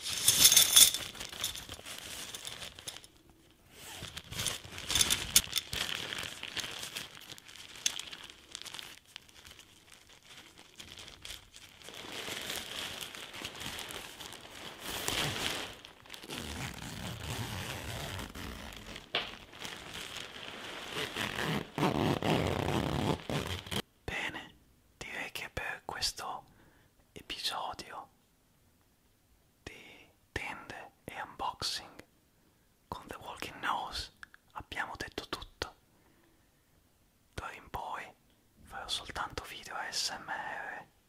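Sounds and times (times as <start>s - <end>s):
nylon fabric crinkling: 0.0s - 23.8s.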